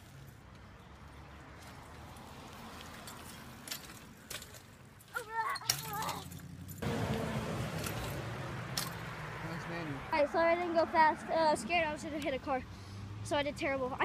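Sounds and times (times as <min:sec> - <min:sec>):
bike rolling on concrete: 0:00.0 - 0:12.6
bike chain rattling and clicking: 0:02.8 - 0:06.8, 0:07.7 - 0:09.1.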